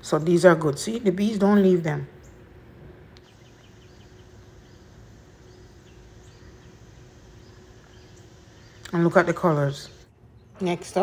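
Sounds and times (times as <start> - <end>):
low steady hum: 0.0 - 11.0
high bird chirps: 3.2 - 11.0.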